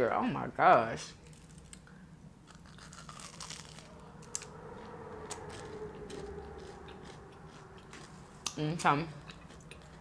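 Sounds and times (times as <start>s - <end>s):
crunching of crispy pastry: 1.2s - 4.5s, 5.3s - 8.2s.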